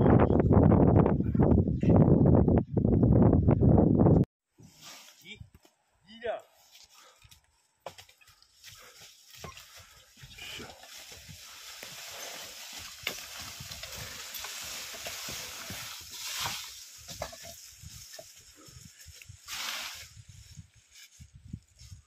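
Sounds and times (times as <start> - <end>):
leaves and brushwood rustling: 4.6 - 22.0.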